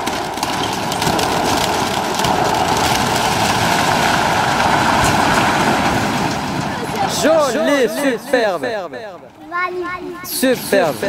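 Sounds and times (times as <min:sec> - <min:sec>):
faint wood cracks: 0:00.0 - 0:07.3
heavy machine engine running: 0:00.0 - 0:08.8.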